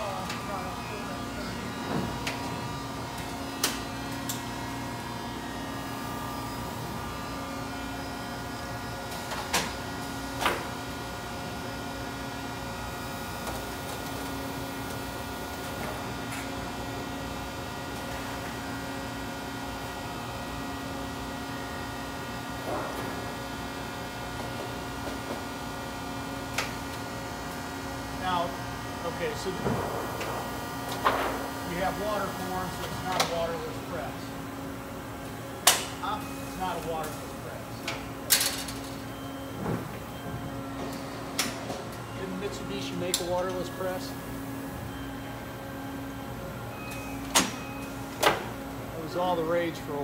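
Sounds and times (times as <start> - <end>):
printing press machine hum: 0.0 - 50.0.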